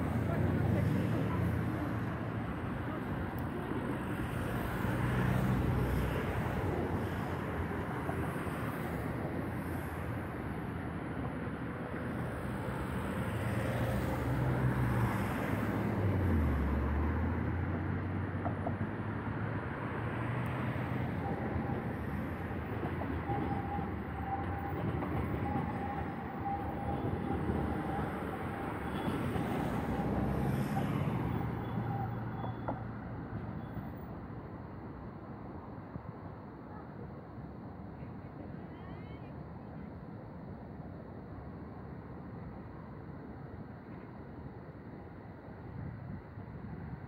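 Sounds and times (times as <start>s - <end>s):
vehicles passing: 0.0s - 34.9s
city traffic rumble: 0.0s - 47.0s.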